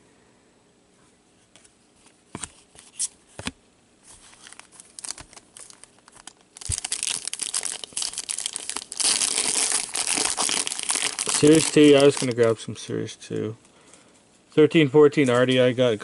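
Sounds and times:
plastic wrapper crinkling and tearing: 4.2 - 12.5.

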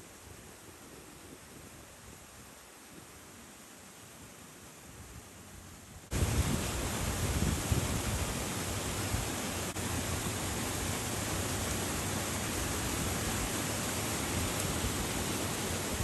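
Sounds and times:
wind buffeting microphone: 6.1 - 9.3.

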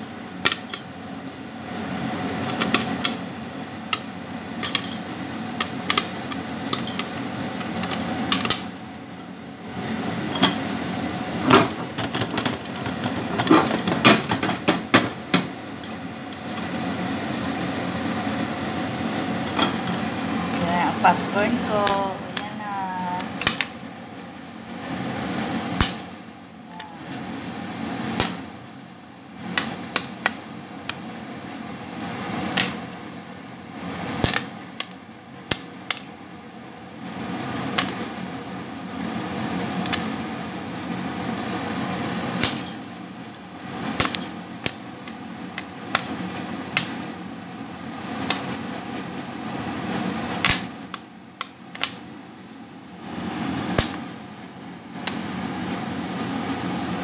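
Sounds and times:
popcorn kernels popping: 0.2 - 1.0, 2.3 - 8.8, 11.6 - 16.8, 23.2 - 23.8, 25.8 - 26.9, 28.0 - 28.5, 29.4 - 31.1, 32.4 - 33.1, 34.1 - 36.2, 37.6 - 38.1, 39.7 - 40.2, 42.2 - 47.1, 48.1 - 48.7, 50.3 - 52.1, 53.7 - 54.1, 55.0 - 55.4.

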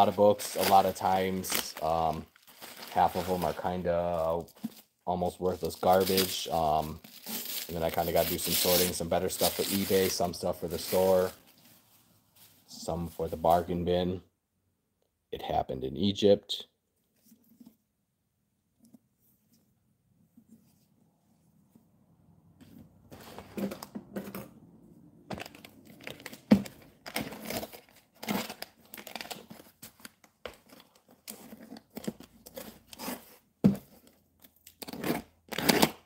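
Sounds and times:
plastic wrapping crinkling and tearing: 0.0 - 4.8, 5.6 - 11.8, 25.3 - 33.1.

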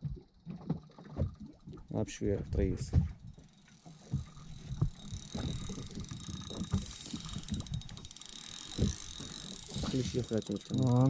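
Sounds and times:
fishing reel whirring and clicking: 2.6 - 11.0.

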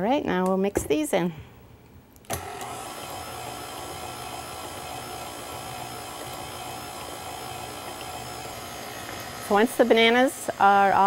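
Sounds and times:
stand mixer motor whine: 2.3 - 11.0.

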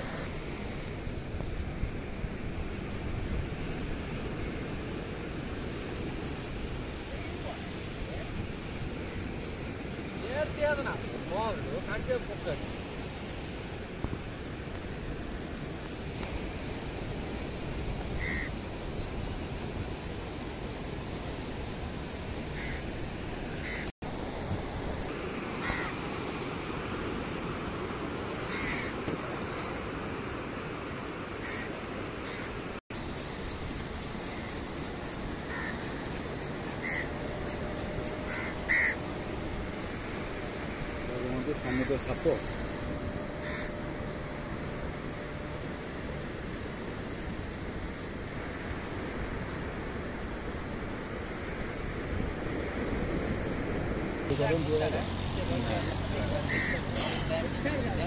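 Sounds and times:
wind and surf hiss: 0.0 - 58.0
crows cawing: 18.2 - 18.5, 22.6 - 22.9, 23.6 - 23.9, 25.6 - 26.0, 28.5 - 29.0, 31.4 - 32.5, 35.4 - 35.9, 36.6 - 37.3, 38.0 - 39.0, 41.6 - 44.2, 55.8 - 57.3
steady rushing background: 32.9 - 48.5.

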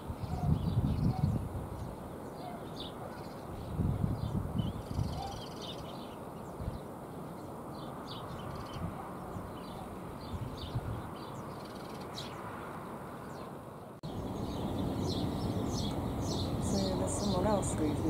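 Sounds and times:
small birds chirping: 0.0 - 18.0
low outdoor rumble: 14.0 - 18.0.

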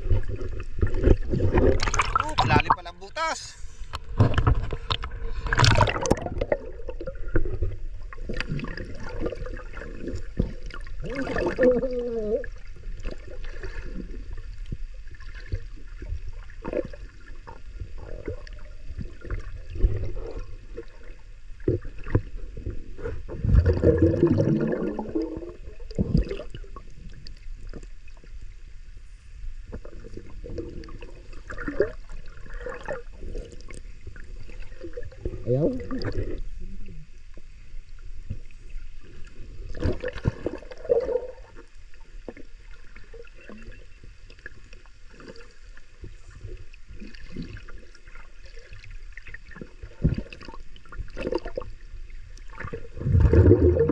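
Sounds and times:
water surge: 0.0 - 7.6, 52.5 - 53.9
muffled underwater rumbling and gurgling: 0.0 - 53.9.

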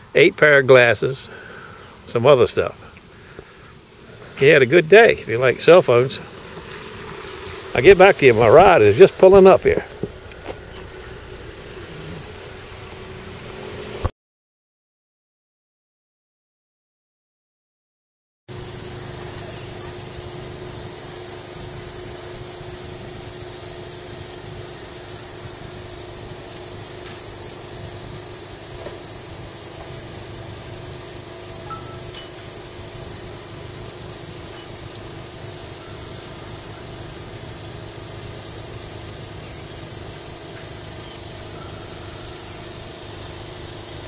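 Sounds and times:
high-pitched hiss: 0.0 - 14.1, 18.5 - 44.0
high-pitched insect drone: 0.0 - 14.1, 18.5 - 44.0
steady low hum: 0.0 - 14.1, 18.5 - 44.0.

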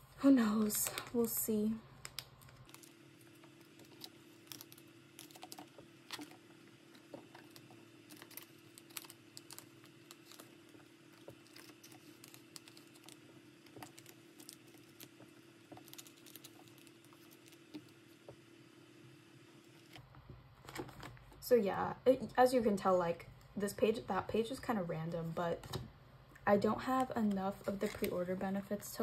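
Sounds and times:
faint steady hum: 0.0 - 29.0
card tapping and crinkling on plastic: 19.9 - 21.2.

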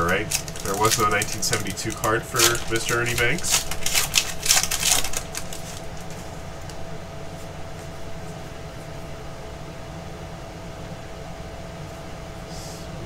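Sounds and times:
cards rustling: 0.0 - 8.4
room hum: 0.0 - 13.0.

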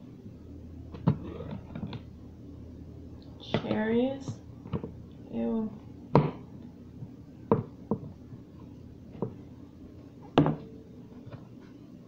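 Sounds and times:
food containers knocking: 7.5 - 8.2.

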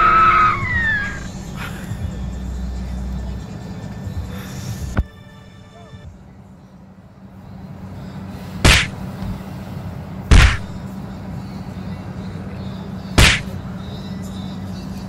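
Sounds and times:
steady low hum: 0.0 - 15.0
loud sharp thumps: 8.6 - 9.4, 10.3 - 10.8, 13.2 - 13.6.

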